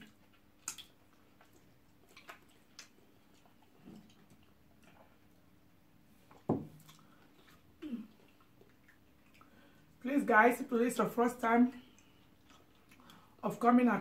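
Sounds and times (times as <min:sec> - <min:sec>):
mouth clicks and smacks: 0:00.0 - 0:05.1.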